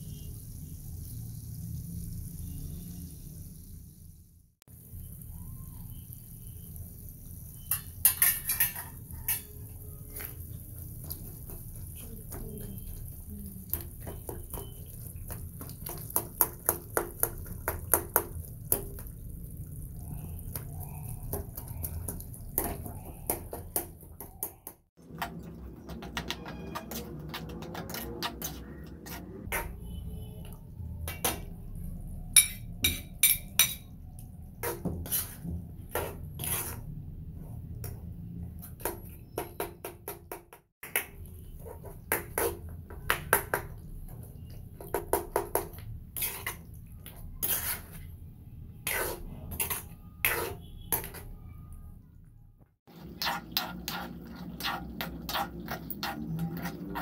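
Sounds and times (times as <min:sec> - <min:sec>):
metal ladle scraping a metal pan: 0:07.5 - 0:11.2, 0:34.6 - 0:36.9, 0:47.4 - 0:48.1, 0:48.8 - 0:51.4.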